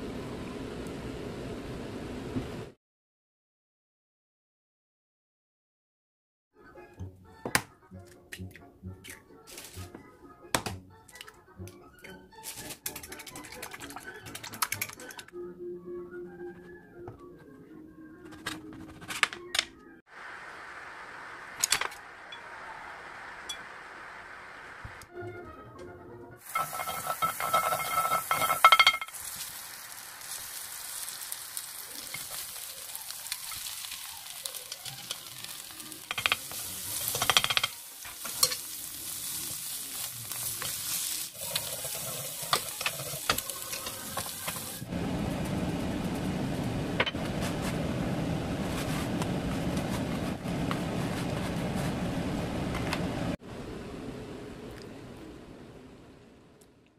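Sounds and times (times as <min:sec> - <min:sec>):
bread sizzling in frying pan: 0:26.4 - 0:46.1
chopsticks clinking on bowl: 0:26.5 - 0:29.1.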